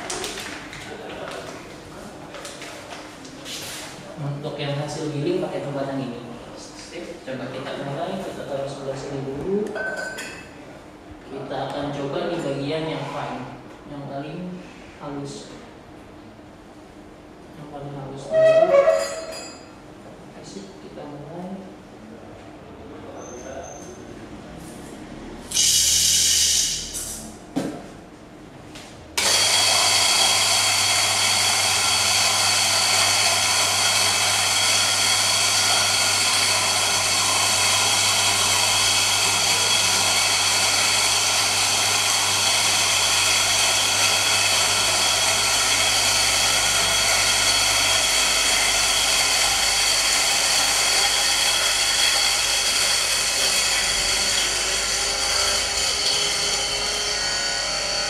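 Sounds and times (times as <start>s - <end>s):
electric coffee grinder grinding: 29.2s - 58.0s.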